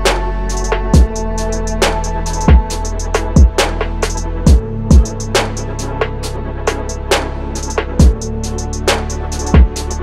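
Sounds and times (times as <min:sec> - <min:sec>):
electronic beat music: 0:00.0 - 0:10.0
hi-hat ticks: 0:00.5 - 0:03.3, 0:07.6 - 0:10.0
deep kick drums dropping in pitch: 0:00.7 - 0:01.2, 0:02.4 - 0:05.4, 0:08.0 - 0:08.2, 0:09.5 - 0:09.8.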